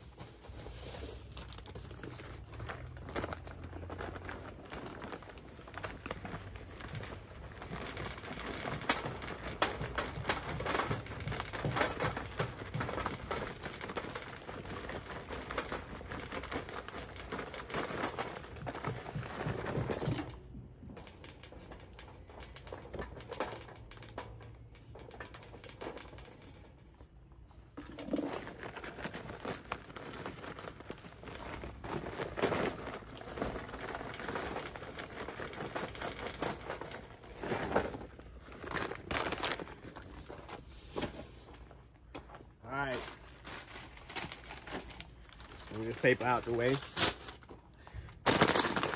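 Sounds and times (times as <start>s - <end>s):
paper crinkling and rustling: 0.0s - 48.9s
charcoal clicks and clatters: 0.1s - 48.9s.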